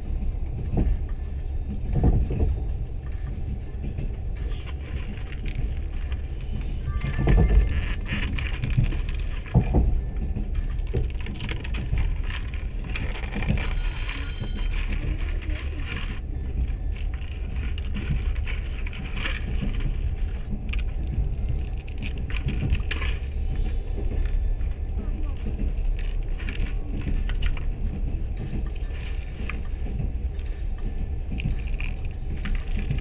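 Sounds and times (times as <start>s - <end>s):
train carriage rumbling: 0.0s - 33.0s
rising high-pitched whine: 22.8s - 26.0s.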